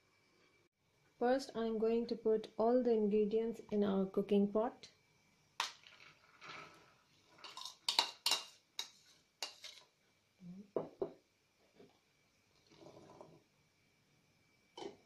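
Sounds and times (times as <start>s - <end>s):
spoon scraping nonstick pan: 6.4s - 9.9s.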